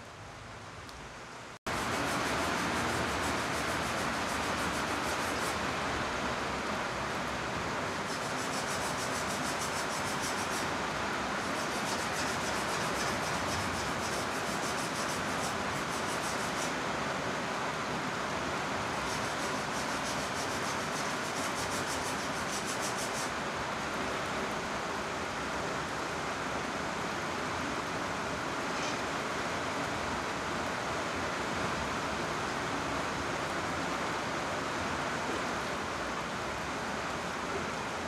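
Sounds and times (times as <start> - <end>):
heavy rain: 1.4 - 21.2.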